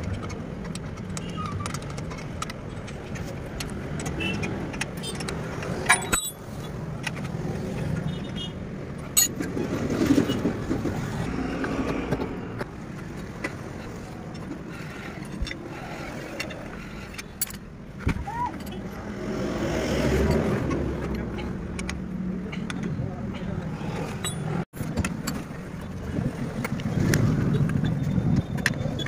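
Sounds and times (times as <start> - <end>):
metallic clinks of tools: 5.9 - 6.4.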